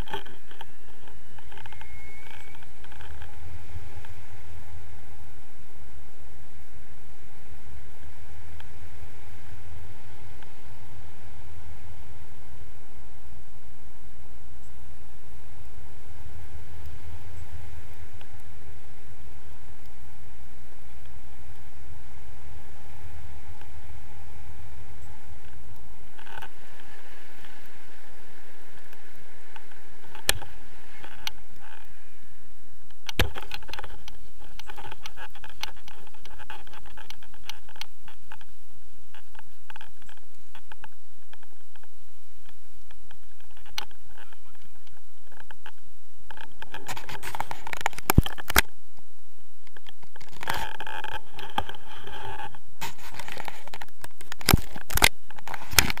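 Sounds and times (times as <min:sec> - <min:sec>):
camera handling scraping and rubbing: 0:00.0 - 0:03.4, 0:46.3 - 0:48.6, 0:50.1 - 0:56.0.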